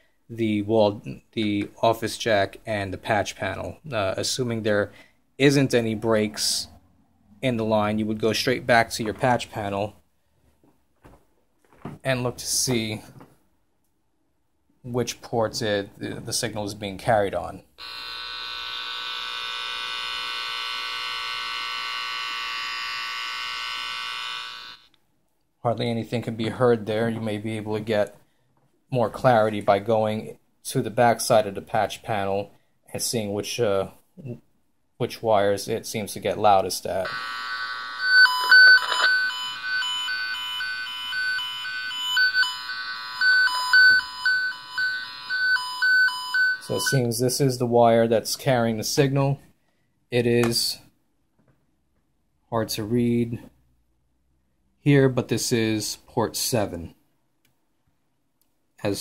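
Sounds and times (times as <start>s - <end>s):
buzzy electronic tone: 17.8s - 24.9s, 37.0s - 47.1s.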